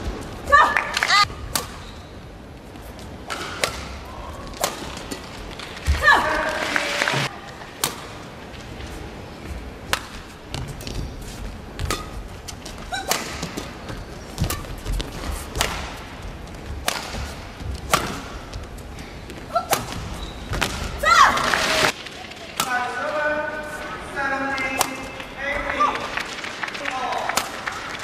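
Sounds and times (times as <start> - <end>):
court shoes squeaking: 1.1 - 22.0
racket hitting shuttlecock: 1.4 - 2.0, 3.2 - 6.5, 7.7 - 8.3, 11.8 - 16.1, 16.7 - 18.5, 19.5 - 21.2, 24.6 - 25.3, 27.3 - 27.8.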